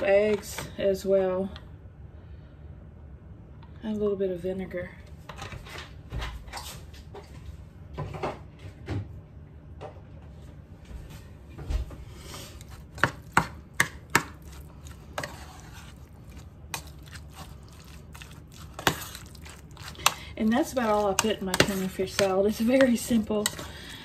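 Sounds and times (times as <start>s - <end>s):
spoon scraping ceramic bowl: 12.6s - 23.7s.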